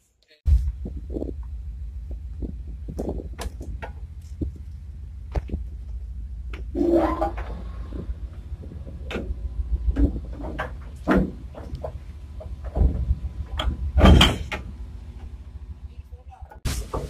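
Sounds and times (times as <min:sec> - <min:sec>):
steady low rumble: 0:00.5 - 0:16.9
anchor windlass metallic clanks: 0:02.1 - 0:15.4.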